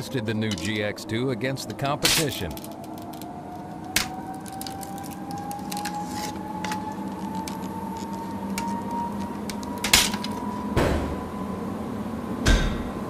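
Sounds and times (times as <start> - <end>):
small clicks and creaks: 2.3 - 10.4
loud hit: 10.8 - 11.3.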